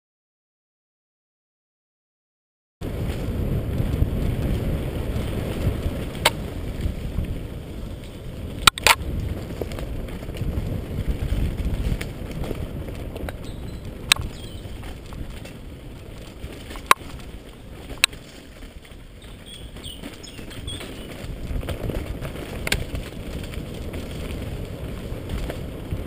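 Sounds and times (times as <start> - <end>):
bike rattling: 2.8 - 26.0
tyres rumbling on dirt: 2.8 - 26.0.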